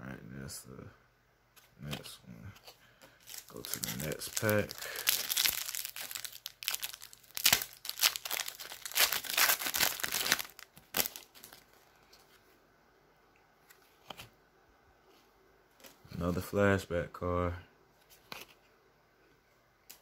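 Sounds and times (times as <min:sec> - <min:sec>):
wrapper tearing and crinkling: 0:03.2 - 0:11.8.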